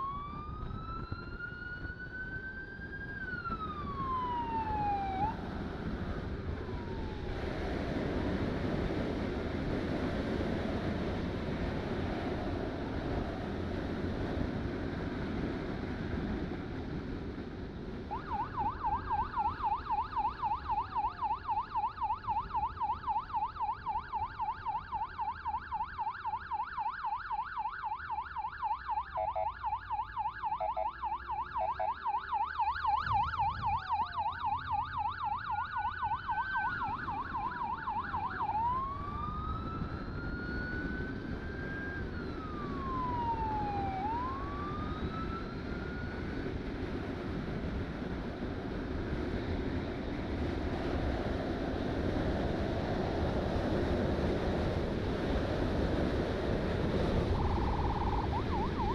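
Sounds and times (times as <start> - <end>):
siren yelp: 0.0 - 7.8, 18.1 - 46.7, 56.8 - 58.9
siren wail: 0.0 - 8.8, 18.1 - 46.8, 56.6 - 58.9
wind and road noise: 0.0 - 58.9.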